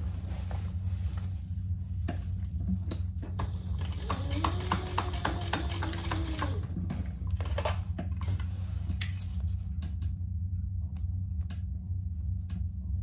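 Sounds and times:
fabric rustling: 0.0 - 4.3
steady low hum: 0.0 - 13.0
sewing machine stitching: 3.4 - 6.7.

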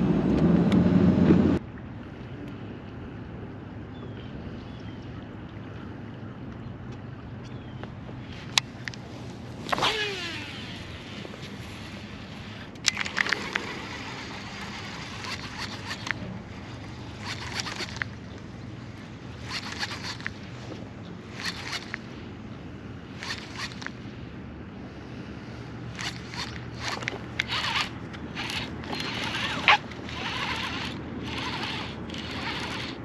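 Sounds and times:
steady low hum: 0.0 - 33.0
fishing reel spool whirring: 8.3 - 24.6, 25.3 - 33.0
fishing reel cranking: 9.7 - 11.0, 12.4 - 18.2, 19.4 - 20.4, 21.3 - 22.0, 23.2 - 24.0, 25.9 - 33.0
sharp clicks: 12.8 - 13.7.

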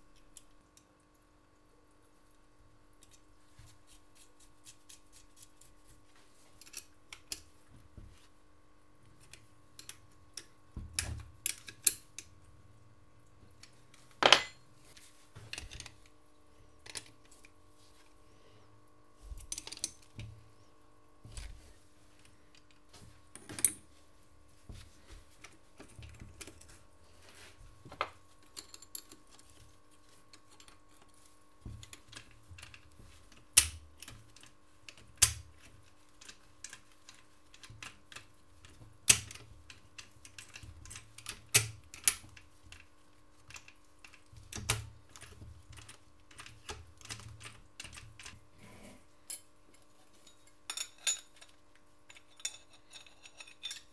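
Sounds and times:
faint steady hum: 0.0 - 53.9
metal parts clinking on metal: 50.2 - 53.9.

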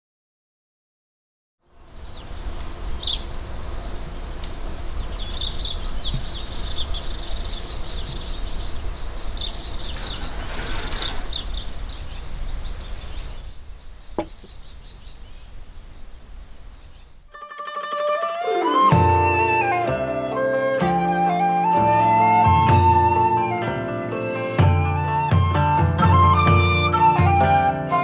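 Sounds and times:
birds chirping: 1.8 - 17.3.

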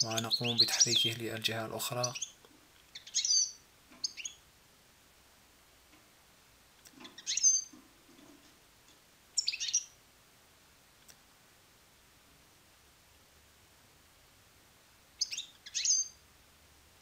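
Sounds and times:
finch chirping: 0.0 - 1.2, 1.9 - 4.4, 6.8 - 8.4, 9.4 - 10.0, 15.2 - 16.2.

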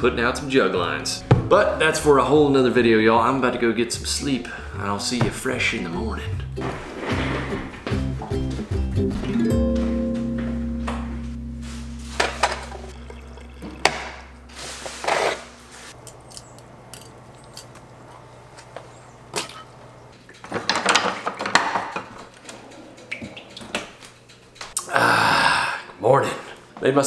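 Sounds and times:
acoustic guitar music: 0.0 - 15.8
oil pouring: 12.1 - 15.6
knocks and clatters: 20.2 - 24.6.

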